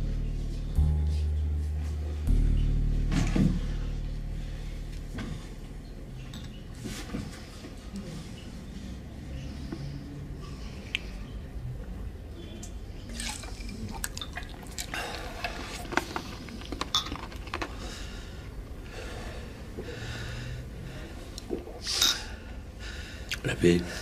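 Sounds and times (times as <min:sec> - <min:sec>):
sipping liquid: 0:13.1 - 0:17.8
breathing and exhale: 0:17.7 - 0:23.3.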